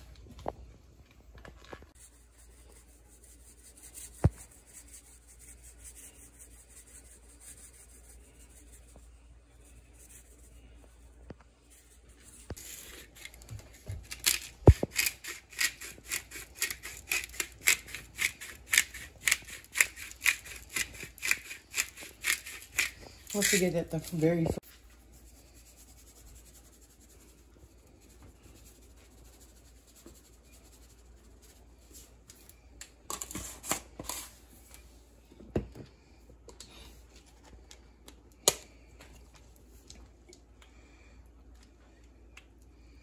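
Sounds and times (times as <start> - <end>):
spice shaker rattling: 14.1 - 23.7.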